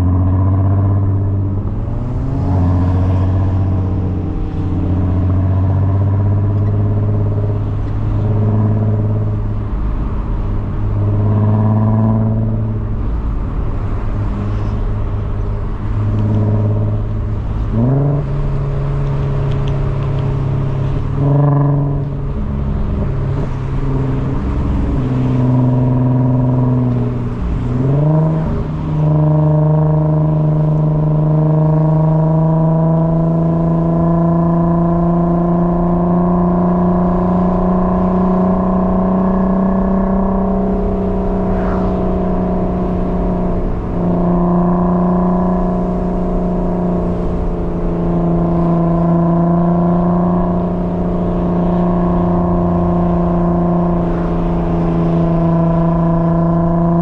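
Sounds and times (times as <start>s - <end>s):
car engine running: 0.0s - 57.0s.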